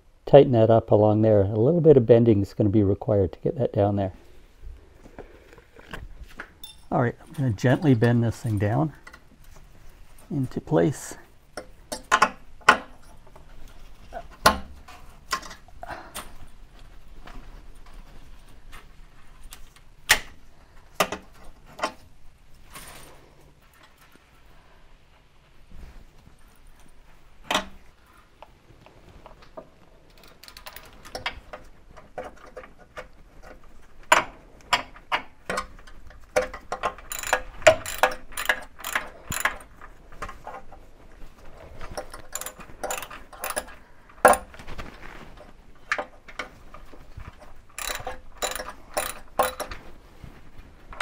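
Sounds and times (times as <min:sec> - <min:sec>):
metallic clicks and clinks: 0:06.6 - 0:09.2, 0:35.5 - 0:40.0, 0:41.9 - 0:44.5, 0:47.7 - 0:49.8.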